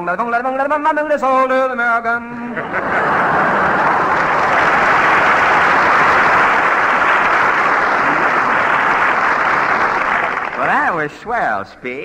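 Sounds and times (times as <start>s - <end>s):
audience applauding: 2.9s - 11.1s.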